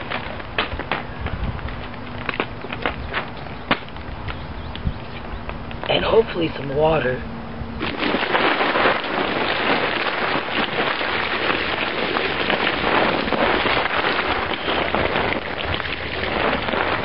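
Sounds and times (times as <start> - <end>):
water pouring and splashing: 0.0 - 2.9, 7.8 - 17.0.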